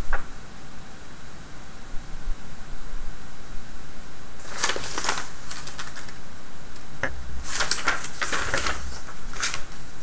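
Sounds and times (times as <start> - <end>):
paper rustling and crinkling: 4.4 - 6.2, 7.4 - 10.0.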